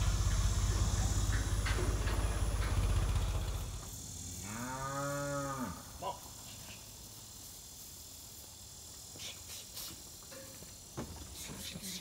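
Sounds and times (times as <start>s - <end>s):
low steady rumble: 0.0s - 4.5s
cow mooing: 4.4s - 5.8s.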